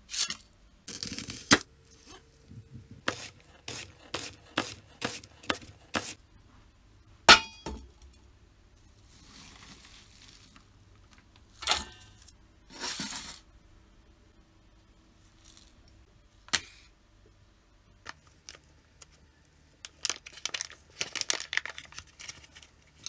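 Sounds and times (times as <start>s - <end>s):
knife chopping onion on board: 3.1s - 6.2s.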